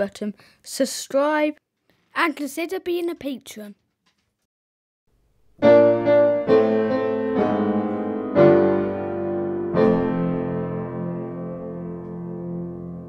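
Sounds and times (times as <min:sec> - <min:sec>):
piano playing slow chords: 0:05.6 - 0:13.0.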